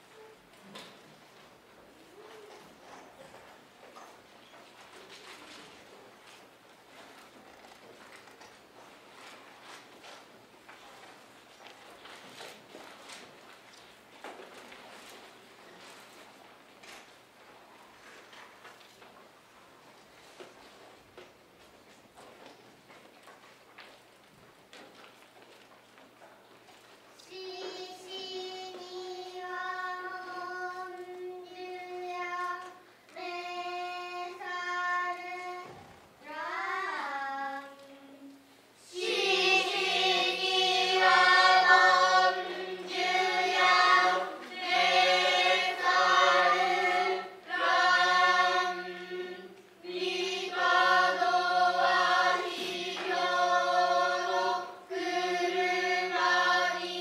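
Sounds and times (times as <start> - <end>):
children chanting in unison: 38.8 - 57.0.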